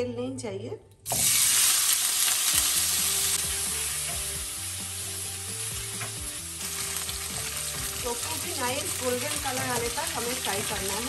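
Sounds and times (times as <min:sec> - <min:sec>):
tofu sizzling in hot oil: 0:01.1 - 0:11.0.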